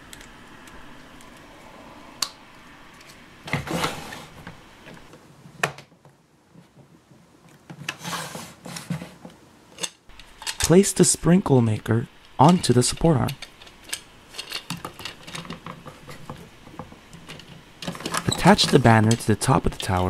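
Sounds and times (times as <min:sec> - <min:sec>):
plastic parts rubbing and scraping: 0:06.6 - 0:10.8, 0:12.9 - 0:20.0.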